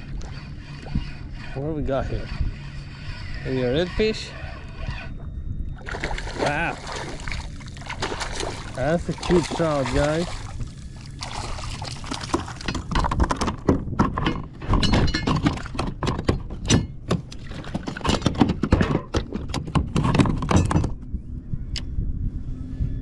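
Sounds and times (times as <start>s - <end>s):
knocks and clinks of fishing gear: 12.0s - 21.0s.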